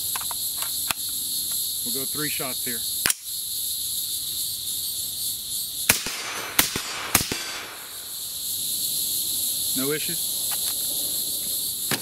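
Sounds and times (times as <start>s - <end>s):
insect buzzing: 0.0s - 12.0s
sharp click: 3.0s - 3.2s
suppressed rifle shots: 5.9s - 8.0s.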